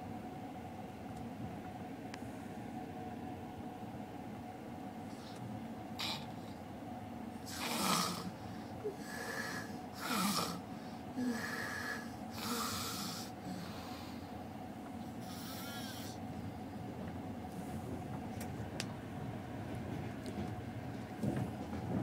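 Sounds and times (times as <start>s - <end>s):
woman snoring: 6.0s - 6.3s, 7.5s - 8.3s, 8.9s - 10.6s, 11.2s - 14.1s, 15.2s - 16.2s.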